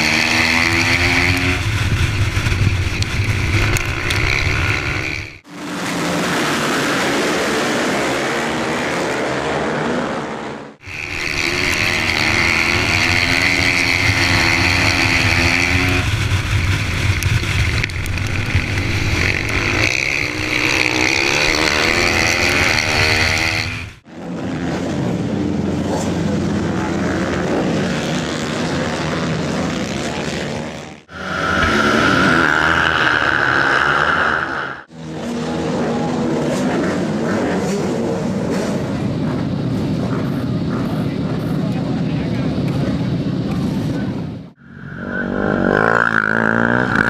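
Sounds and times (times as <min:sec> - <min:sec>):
motorcycle engines revving: 0:00.0 - 0:47.0.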